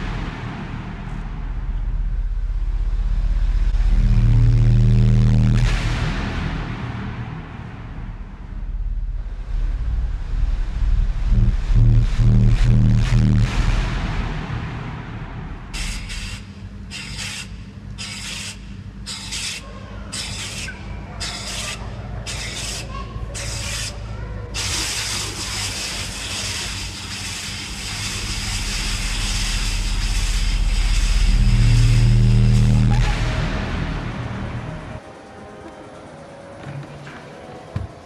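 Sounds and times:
deep bass drone: 0.0s - 35.5s
steady gas hiss: 15.7s - 32.8s
gas flame whooshing bursts: 24.6s - 33.2s.

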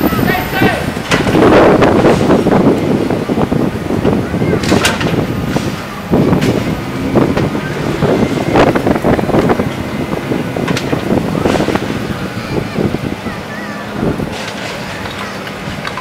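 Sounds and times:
excavator engine rumble: 0.0s - 16.0s
wind buffeting microphone: 0.0s - 16.0s.

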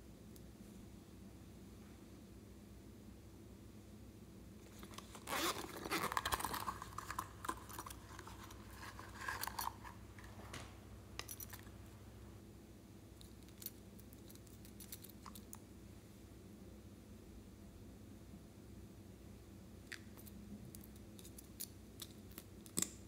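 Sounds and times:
pencil case scraping and rustling: 4.6s - 10.5s.

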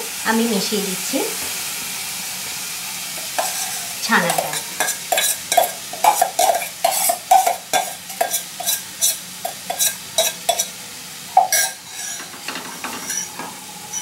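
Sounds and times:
light sizzle from pan: 0.0s - 14.0s
spatula scraping and knocking: 3.3s - 10.7s, 11.4s - 14.0s.

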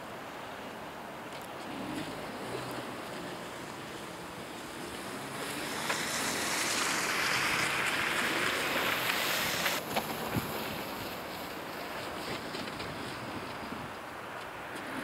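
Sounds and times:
car tyres hissing through snow: 1.6s - 15.0s.

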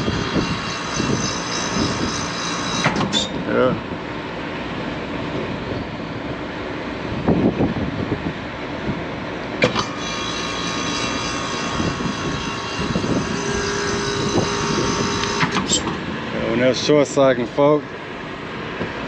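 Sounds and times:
hvac unit whine: 0.0s - 19.0s.

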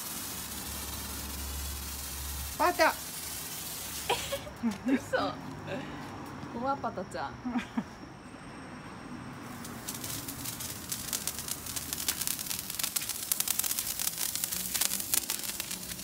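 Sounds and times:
firework hissing and crackling: 0.0s - 5.1s, 9.4s - 16.0s.

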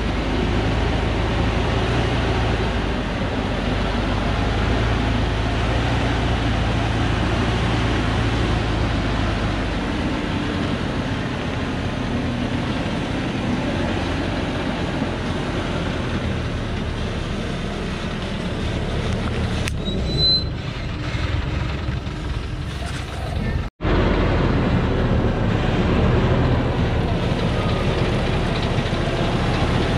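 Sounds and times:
diesel truck engine rumbling: 0.0s - 29.9s
short high squeak: 19.7s - 20.7s.

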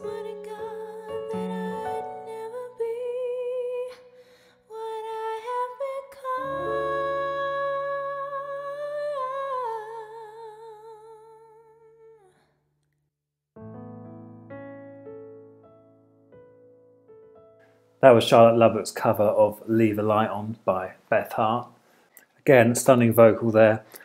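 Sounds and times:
piano: 0.0s - 10.5s, 13.6s - 20.6s
woman singing a slow ballad: 0.0s - 12.4s.

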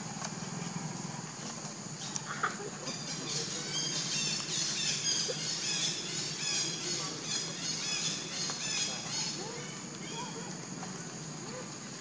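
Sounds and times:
birds chirping and squawking: 2.0s - 10.4s.

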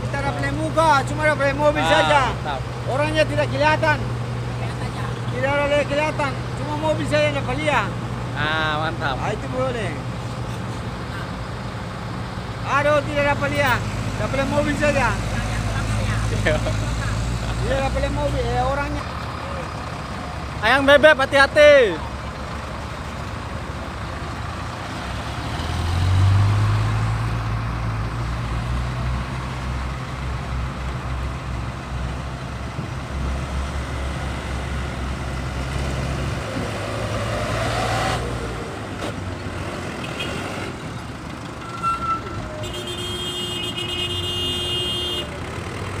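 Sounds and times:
diesel truck engines running: 0.0s - 46.0s
engine revving: 12.0s - 22.0s, 23.9s - 41.5s.

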